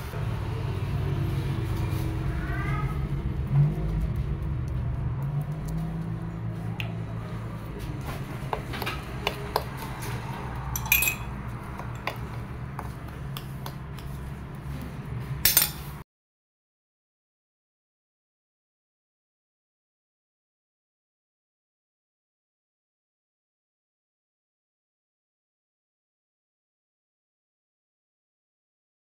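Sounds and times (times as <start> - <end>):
spoon scraping a plate: 8.1 - 13.0, 15.5 - 16.0.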